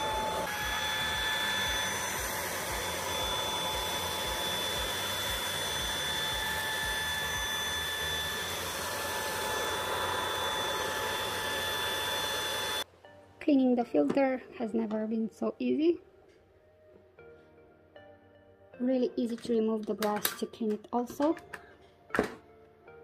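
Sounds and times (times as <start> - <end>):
vacuum cleaner motor whine: 0.0 - 12.9.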